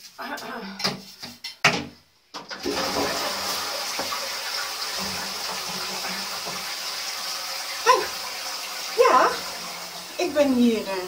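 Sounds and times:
toilet flushing: 2.4 - 11.0.

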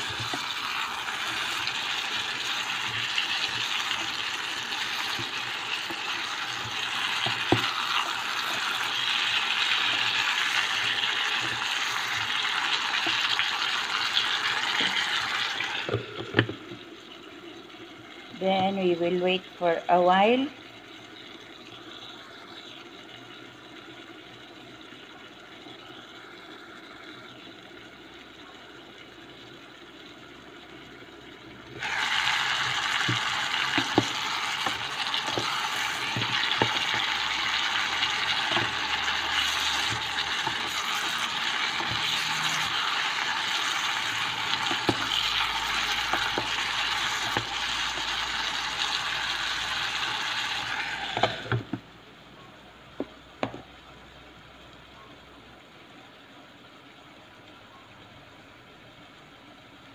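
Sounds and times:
spatula knocking and scraping pan: 0.0 - 13.4, 32.6 - 42.7, 44.5 - 45.2
vegetables sizzling in a pan: 0.0 - 55.5.

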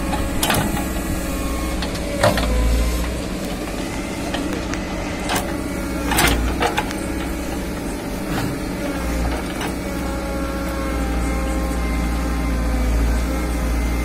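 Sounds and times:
diesel engine running under load: 0.0 - 14.0
hydraulic whine: 0.0 - 14.0
metallic clanks of bucket linkage: 4.3 - 7.7.

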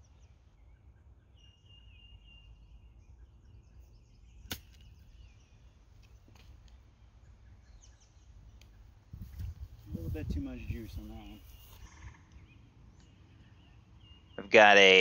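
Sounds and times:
golf club striking ball: 4.5 - 5.0.

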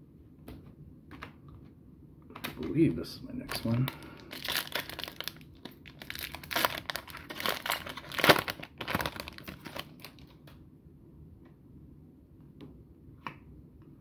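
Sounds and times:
foil wrapper tearing and crinkling: 3.5 - 10.4.

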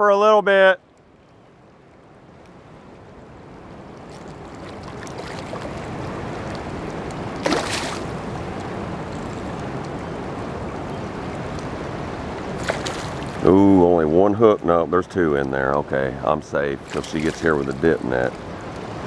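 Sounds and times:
rushing water: 0.0 - 19.0
fish splashing at surface: 4.1 - 6.0, 7.4 - 8.3, 12.6 - 13.4, 16.8 - 17.7.

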